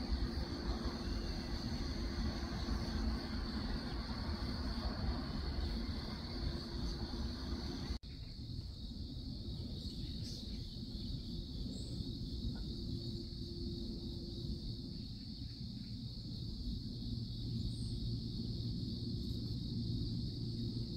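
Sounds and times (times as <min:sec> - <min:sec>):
low rumble: 0:00.0 - 0:08.0
insects chirring: 0:00.0 - 0:20.9.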